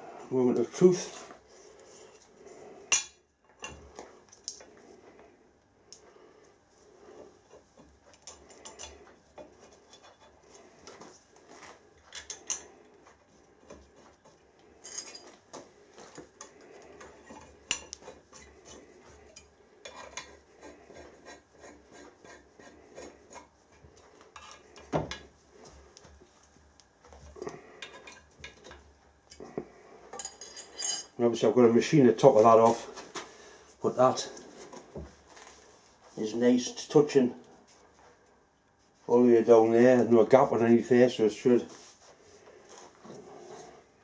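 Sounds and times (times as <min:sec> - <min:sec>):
metal clinks and scrapes: 0:08.1 - 0:10.4, 0:14.8 - 0:15.4, 0:30.1 - 0:31.2.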